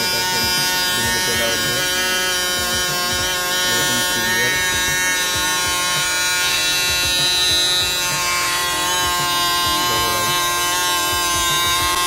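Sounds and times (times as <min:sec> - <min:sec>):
small motor whining: 0:00.0 - 0:12.0.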